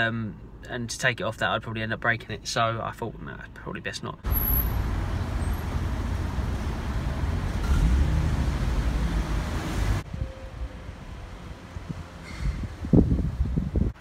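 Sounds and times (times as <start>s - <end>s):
cars driving past: 4.2s - 13.2s
wind buffeting microphone: 10.0s - 14.0s.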